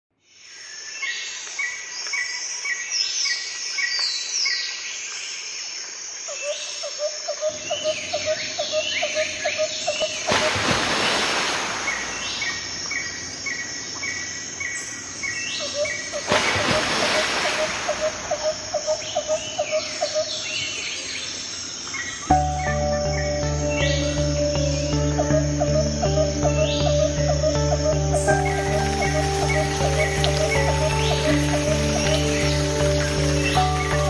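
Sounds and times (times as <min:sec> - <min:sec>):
insects: 0:00.2 - 0:34.0
rushing hiss: 0:10.3 - 0:12.6
birds chirping and whistling: 0:22.0 - 0:34.0.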